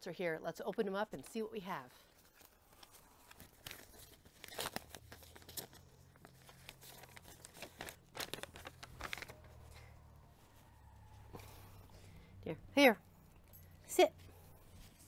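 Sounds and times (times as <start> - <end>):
paper tearing and crinkling: 2.4 - 9.6.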